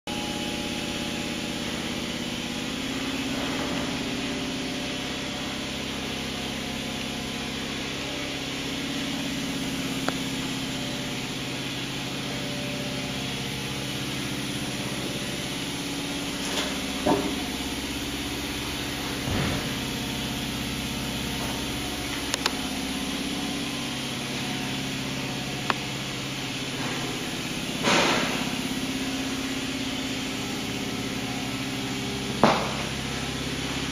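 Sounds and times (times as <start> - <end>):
machine hum: 0.1 - 33.9.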